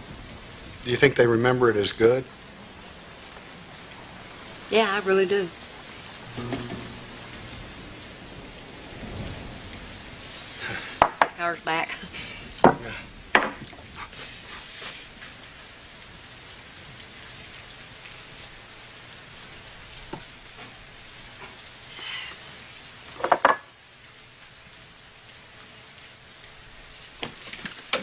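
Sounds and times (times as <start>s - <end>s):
rain hissing: 0.0s - 28.0s
sharp knocks: 6.3s - 7.2s.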